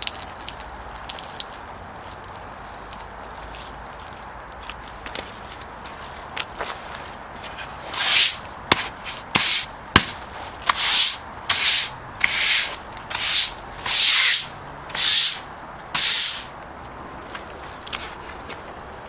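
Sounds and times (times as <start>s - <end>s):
broom scrubbing wet concrete: 7.9s - 16.5s
sharp knocks: 8.7s - 10.8s.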